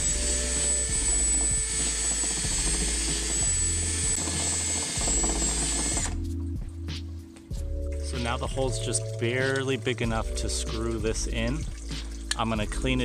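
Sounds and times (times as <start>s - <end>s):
cordless drill whining: 0.0s - 6.2s.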